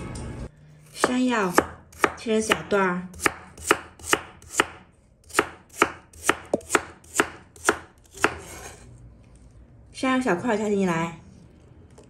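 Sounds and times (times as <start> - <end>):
knife chopping on wooden board: 0.9 - 8.6.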